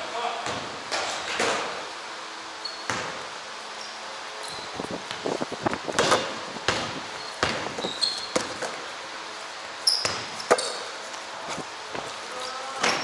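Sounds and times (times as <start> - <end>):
sneaker squeaks: 2.6 - 5.2, 6.0 - 8.8, 9.8 - 11.1, 12.0 - 13.0
basketball bouncing on wooden floor: 2.8 - 3.2, 6.0 - 8.8, 9.9 - 10.8.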